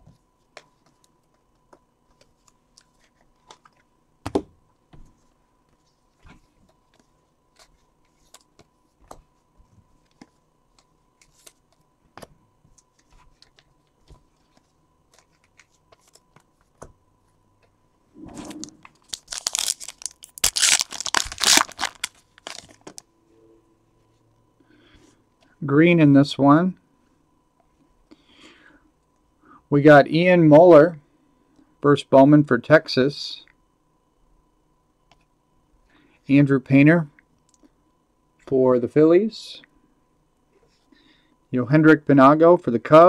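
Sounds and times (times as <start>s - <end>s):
foil pack crinkling and tearing: 19.0s - 23.0s.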